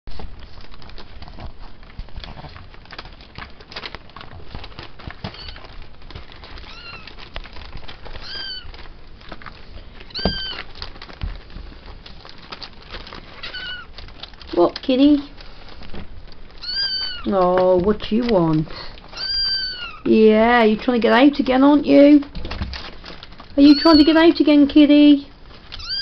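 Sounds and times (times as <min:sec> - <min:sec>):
newspaper rustling: 0:00.1 - 0:26.0
kittens mewing: 0:05.3 - 0:05.8, 0:06.6 - 0:07.2, 0:08.2 - 0:08.8, 0:10.0 - 0:10.7, 0:13.4 - 0:14.0, 0:16.6 - 0:17.4, 0:18.8 - 0:20.1, 0:23.6 - 0:24.4, 0:25.7 - 0:26.0.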